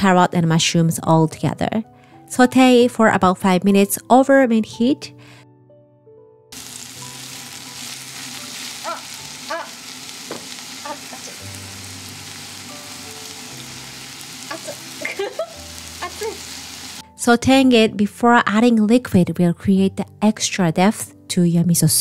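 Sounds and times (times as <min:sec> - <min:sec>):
vegetables sizzling in oil: 0:06.5 - 0:17.1.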